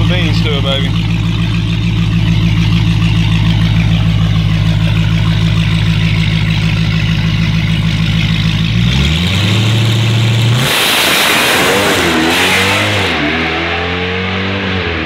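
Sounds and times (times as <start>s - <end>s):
supercharged engine idling: 0.0s - 13.6s.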